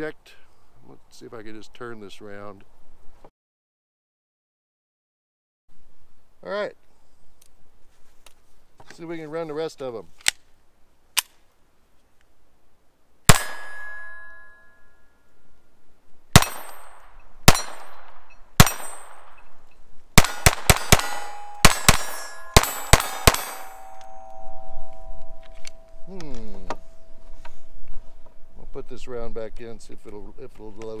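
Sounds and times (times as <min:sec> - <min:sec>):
pistol shots: 0:13.3 - 0:14.2, 0:16.3 - 0:19.5, 0:20.2 - 0:24.1
steel targets ringing: 0:13.3 - 0:15.5, 0:16.4 - 0:19.5, 0:20.2 - 0:26.1.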